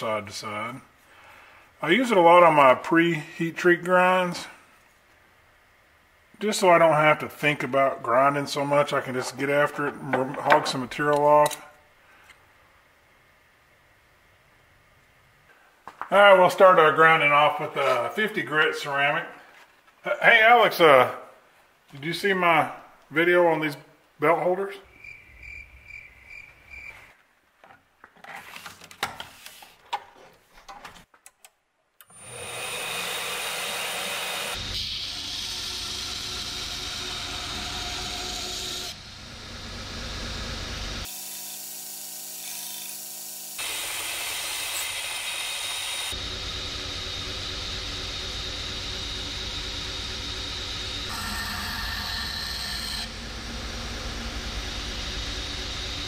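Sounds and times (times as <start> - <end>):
belt grinder grinding knife blade: 51.1 - 53.2.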